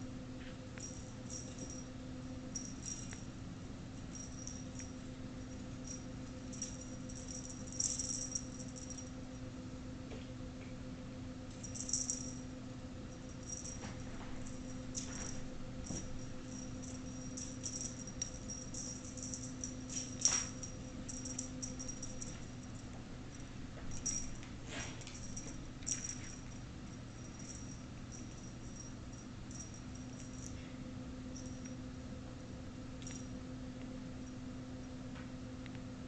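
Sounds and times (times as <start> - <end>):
steady low hum: 0.0 - 36.0
cat toy jingling and rattling: 0.8 - 1.9, 2.5 - 3.4, 4.0 - 9.2, 11.5 - 12.4, 13.2 - 30.6.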